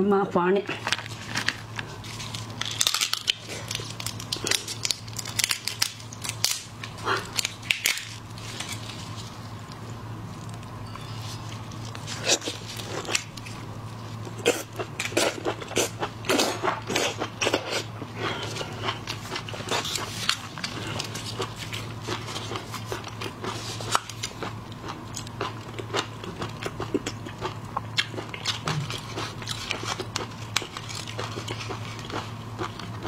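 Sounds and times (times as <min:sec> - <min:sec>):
low hum: 0:00.0 - 0:25.2
prawn shells crackling: 0:00.8 - 0:09.4.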